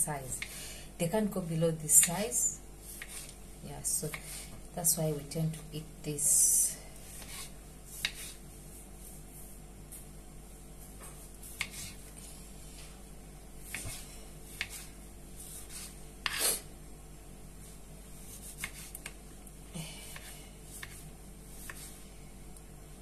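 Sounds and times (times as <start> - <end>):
knife scraping across board: 15.5 - 16.6.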